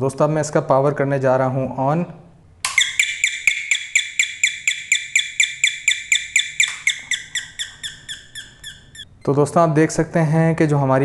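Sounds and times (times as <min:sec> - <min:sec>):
electronic doorbell tones: 0:02.8 - 0:07.3.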